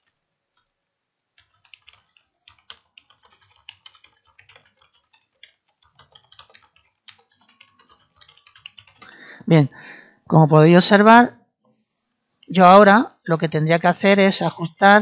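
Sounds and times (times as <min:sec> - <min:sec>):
faint keyboard typing: 0:00.0 - 0:00.7, 0:01.3 - 0:09.3.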